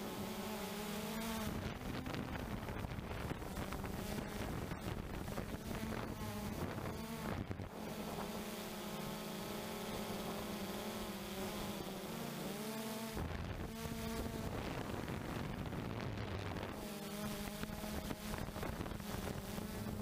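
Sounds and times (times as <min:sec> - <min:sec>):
quadcopter motors buzzing: 0:00.0 - 0:20.0
wind rumble on microphone: 0:01.4 - 0:08.3, 0:13.2 - 0:20.0.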